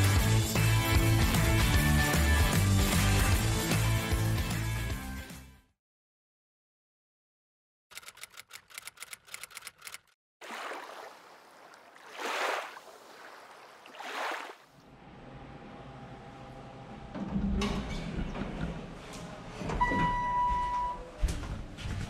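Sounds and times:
quick run of clicks: 0:07.9 - 0:10.2
elevator chime: 0:19.7 - 0:21.2.

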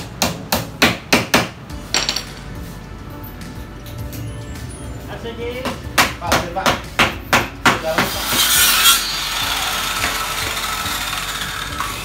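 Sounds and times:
circular saw cutting wood: 0:07.8 - 0:12.0.

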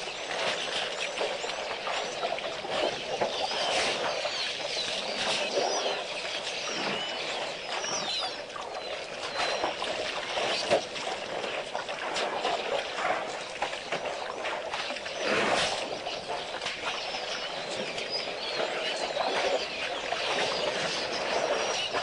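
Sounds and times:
small birds chirping: 0:00.0 - 0:10.8, 0:13.4 - 0:22.0
water splashing and sloshing: 0:00.0 - 0:22.0.

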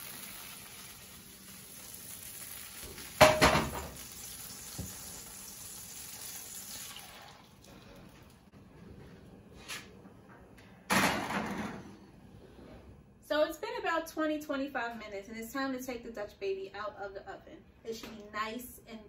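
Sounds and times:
butter sizzling in pan: 0:00.0 - 0:07.3
iron pan clattering on grate: 0:03.0 - 0:04.0
pan clattering into oven: 0:03.2 - 0:04.0, 0:10.9 - 0:11.9.

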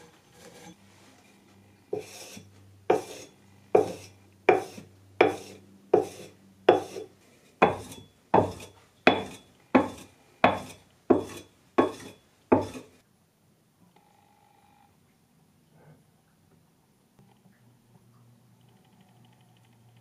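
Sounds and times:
sharpening stone rasping on blade: 0:02.0 - 0:12.9.

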